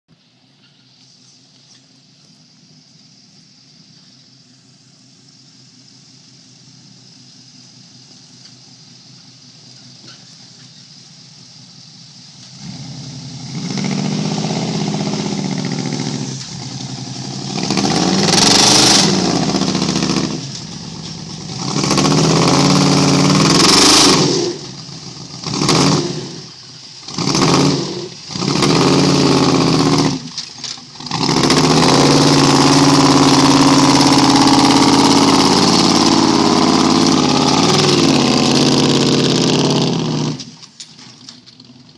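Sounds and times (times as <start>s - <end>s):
truck engine revving hard: 12.6s - 30.4s, 31.0s - 40.6s.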